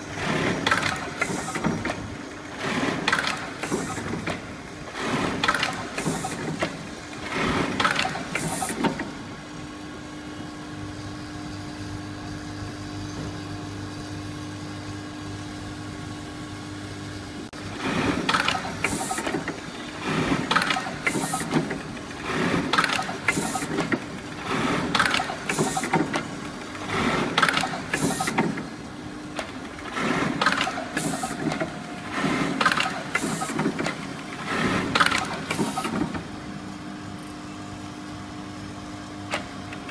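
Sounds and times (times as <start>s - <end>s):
sewing machine humming: 0.0s - 9.4s, 17.7s - 36.4s
sewing machine clattering: 0.2s - 2.0s, 2.6s - 4.4s, 20.2s - 28.6s, 29.4s - 36.2s.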